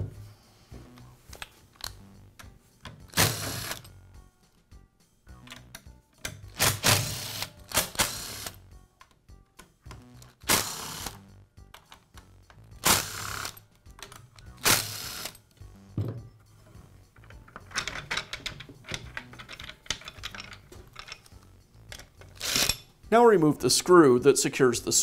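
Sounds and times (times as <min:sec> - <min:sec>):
plastic parts clicking and rattling: 0:17.1 - 0:22.9.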